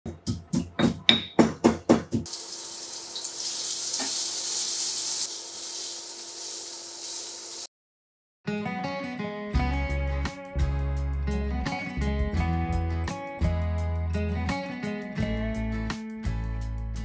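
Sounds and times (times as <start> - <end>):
mortar and pestle pounding: 0.1 - 2.3
paste sizzling in hot oil: 2.3 - 7.7
acoustic guitar music: 8.5 - 16.4.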